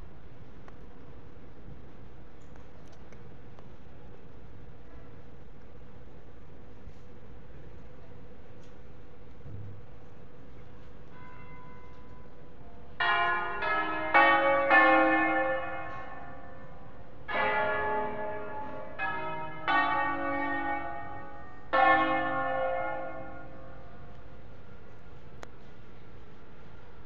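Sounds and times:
church bells ringing: 11.1s - 12.1s, 13.0s - 24.0s.

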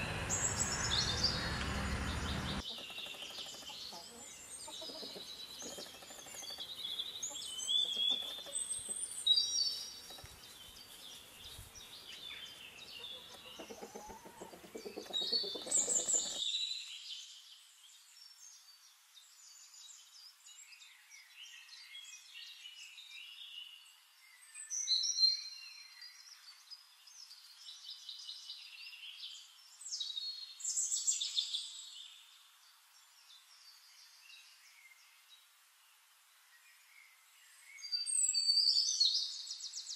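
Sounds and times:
birds chirping and singing: 0.0s - 17.0s.

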